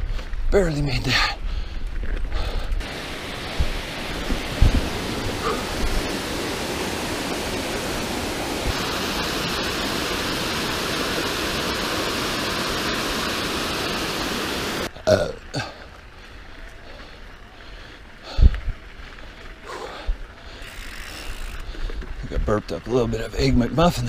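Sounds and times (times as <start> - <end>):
small waterfall rushing: 2.8 - 14.9.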